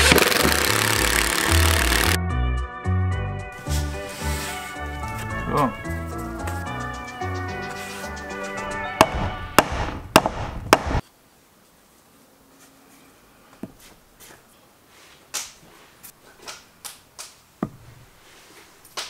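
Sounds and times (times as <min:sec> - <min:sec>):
background music: 0:00.0 - 0:10.2.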